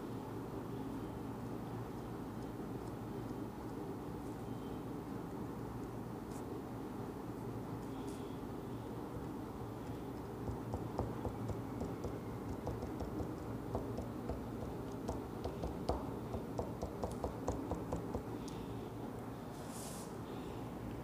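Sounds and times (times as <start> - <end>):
steady low hum: 0.0 - 21.0
pen tip tapping on paper: 10.2 - 18.6.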